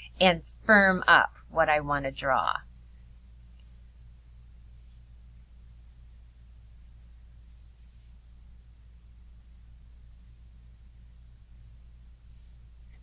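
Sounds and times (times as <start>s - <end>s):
steady low hum: 0.0s - 13.0s
pencil scratching on paper: 3.0s - 8.3s, 9.4s - 13.0s.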